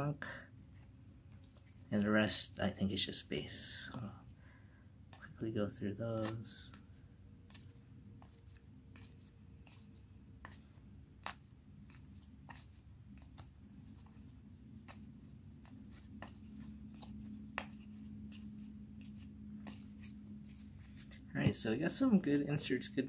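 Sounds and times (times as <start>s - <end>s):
faint low hum: 0.0s - 23.0s
cards flicking with soft snaps: 6.1s - 6.8s, 7.4s - 21.6s.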